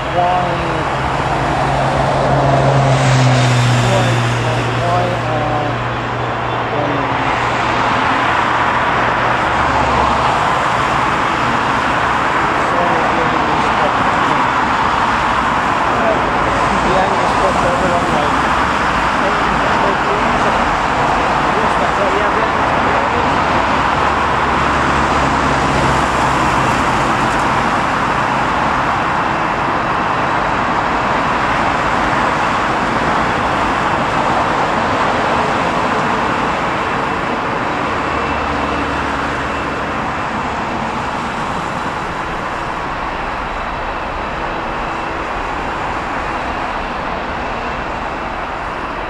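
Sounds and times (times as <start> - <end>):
jet airliner taking off: 0.0 - 49.0
road vehicles passing: 0.0 - 49.0.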